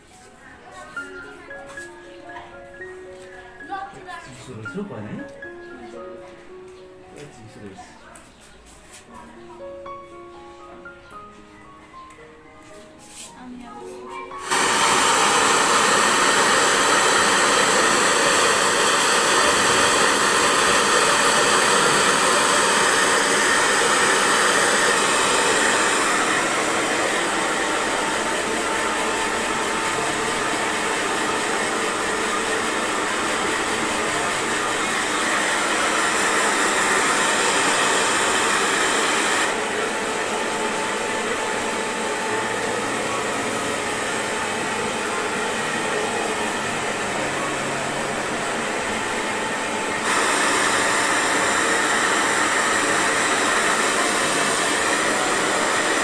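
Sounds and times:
hair dryer blowing: 14.4s - 56.0s.

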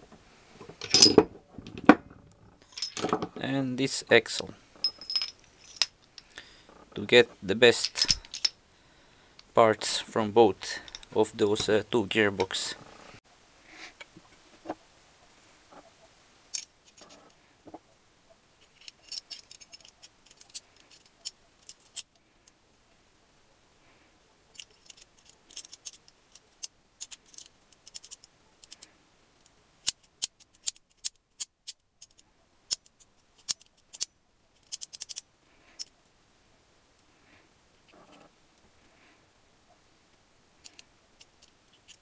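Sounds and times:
metal parts clicking and clinking: 0.6s - 4.0s, 4.8s - 6.3s, 6.9s - 8.6s, 10.6s - 11.8s, 18.6s - 22.1s, 24.5s - 28.9s, 29.8s - 35.9s, 40.6s - 42.0s.

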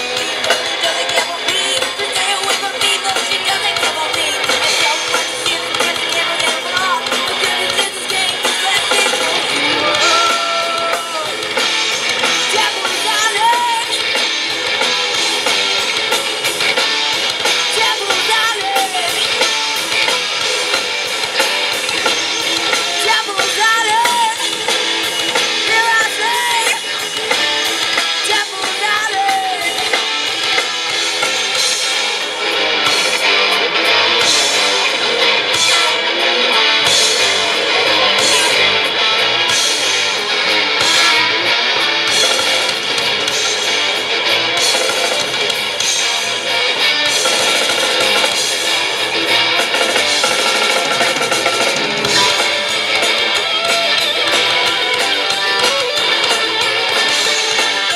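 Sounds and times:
live rock band playing: 0.0s - 57.9s
person singing: 0.5s - 11.4s, 12.4s - 14.0s, 17.7s - 19.4s, 22.7s - 24.7s, 25.6s - 27.1s, 28.1s - 30.2s, 52.0s - 53.4s.

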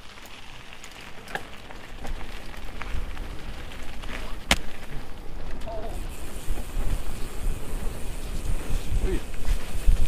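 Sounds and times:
bike clicks and rattles: 0.0s - 10.0s
tyres crackling over dirt: 0.0s - 10.0s
wind rumble on microphone: 5.3s - 10.0s.

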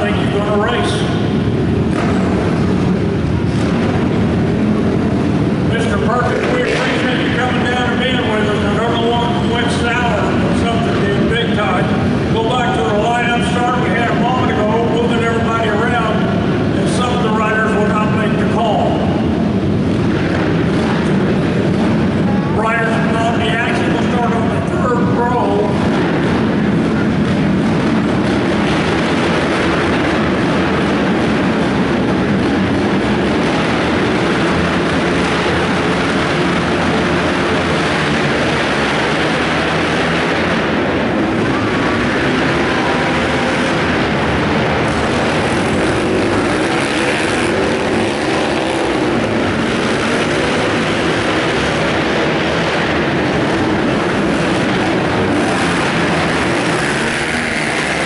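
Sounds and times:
racing quad bike engines: 0.0s - 58.0s.

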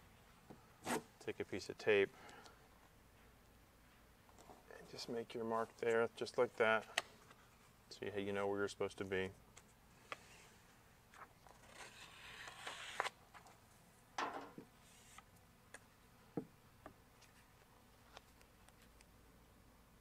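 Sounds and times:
backing paper peeling off vinyl: 11.2s - 13.4s.

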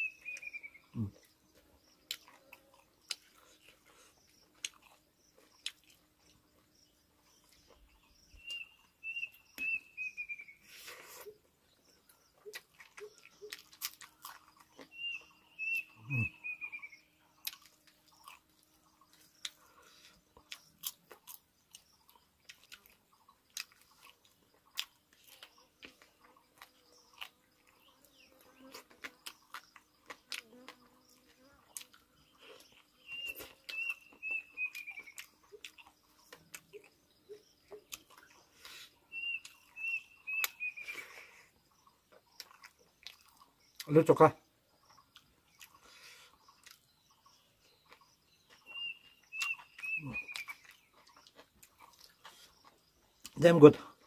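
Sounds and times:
person chewing and crunching food: 0.1s - 8.7s, 10.6s - 16.3s, 17.2s - 43.9s, 44.7s - 54.0s
bird call with falling notes: 48.6s - 50.8s.

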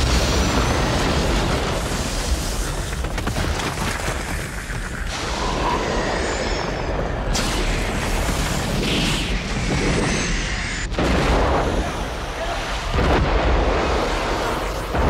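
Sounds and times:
deep eruption rumble: 0.0s - 15.0s
hissing steam and gas: 4.2s - 10.9s.

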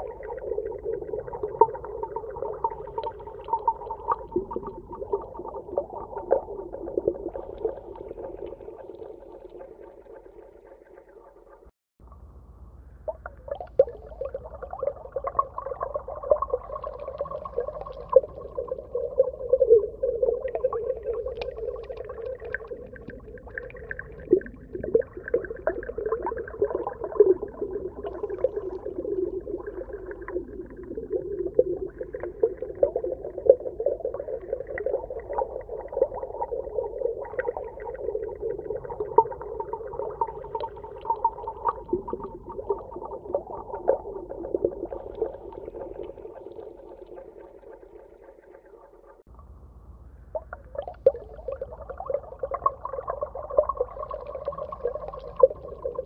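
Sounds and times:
muffled underwater ambience: 0.0s - 56.0s
small crackles and pops: 16.4s - 18.9s, 20.4s - 30.8s.

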